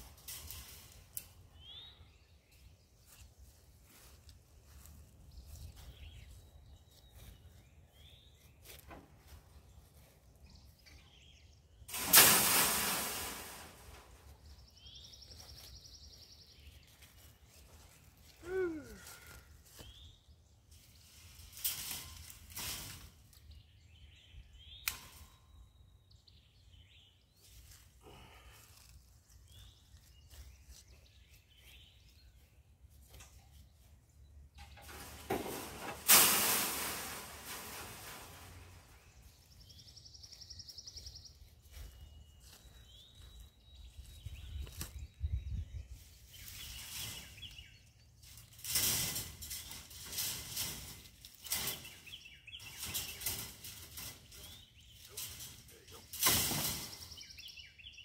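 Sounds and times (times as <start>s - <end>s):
birds chirping: 0.2s - 12.0s, 13.2s - 35.9s, 36.9s - 58.0s
loud metal clatter: 34.8s - 38.8s
wire scraping: 48.2s - 57.1s.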